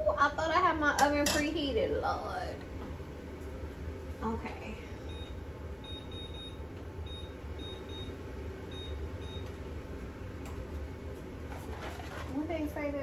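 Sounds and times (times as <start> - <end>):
low steady hum: 0.0 - 13.0
oven control panel beeping: 5.0 - 9.6.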